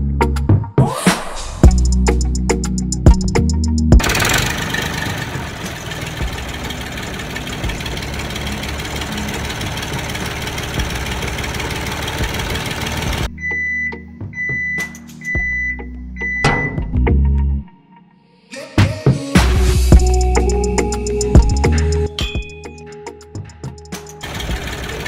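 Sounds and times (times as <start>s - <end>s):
toy tractor engine rumble: 4.0s - 13.3s, 24.2s - 25.0s.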